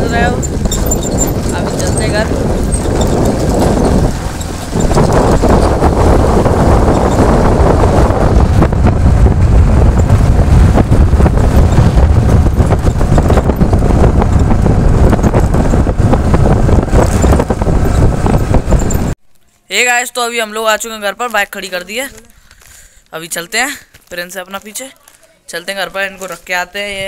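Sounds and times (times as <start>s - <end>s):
motorcycle running: 0.0s - 19.2s
road noise: 0.0s - 19.2s
wind buffeting microphone: 0.0s - 19.2s.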